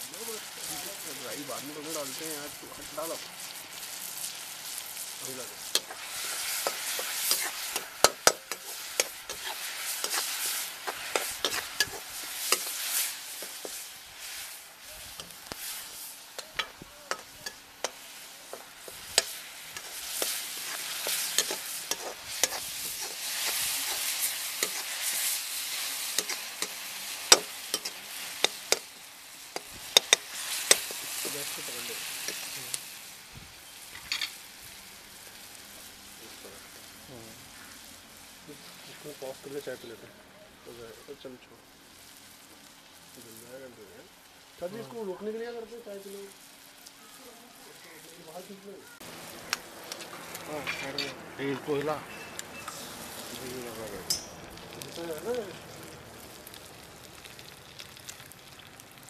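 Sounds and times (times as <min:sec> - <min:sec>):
onions and tomatoes sizzling: 0:00.0 - 0:59.0
steel spoon scraping a pan: 0:00.6 - 0:32.8, 0:49.4 - 0:53.2, 0:54.0 - 0:54.6.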